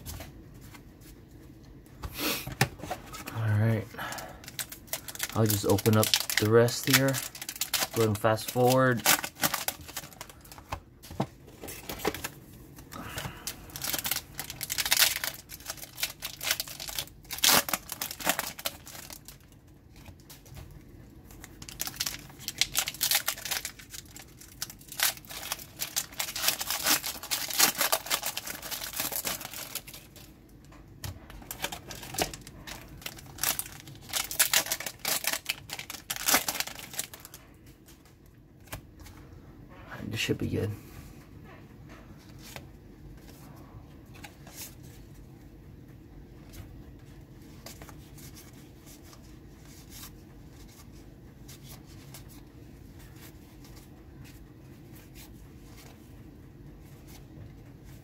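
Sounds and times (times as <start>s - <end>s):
foil wrappers crinkling and tearing: 3.1s - 10.8s, 13.0s - 20.6s, 21.3s - 30.3s, 31.3s - 37.4s.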